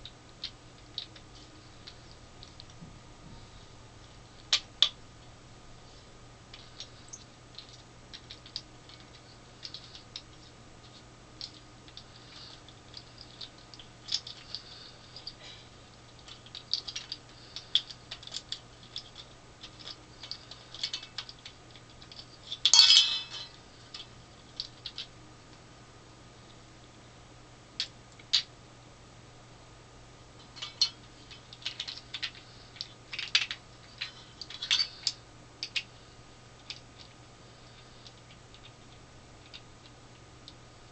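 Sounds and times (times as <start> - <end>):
faint low hum: 0.0 - 40.9
plastic parts clicking: 30.5 - 35.9.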